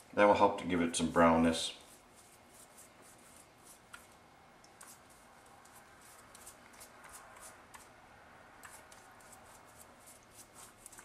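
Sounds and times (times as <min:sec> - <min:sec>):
hands scratching pie crust: 0:01.8 - 0:08.0, 0:08.6 - 0:11.0.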